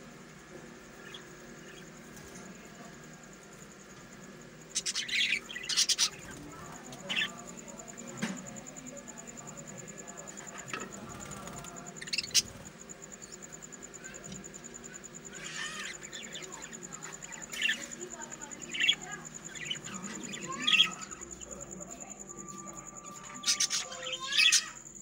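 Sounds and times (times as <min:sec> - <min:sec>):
budgerigars chirping: 0:04.8 - 0:07.4.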